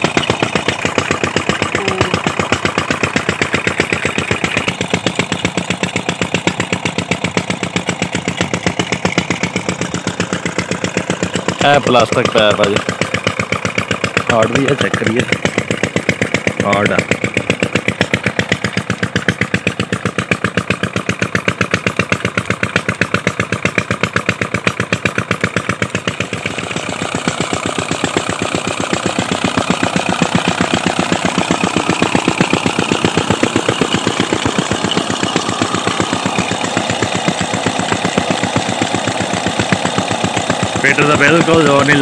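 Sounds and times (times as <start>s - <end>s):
diesel engine running: 0.0s - 42.0s.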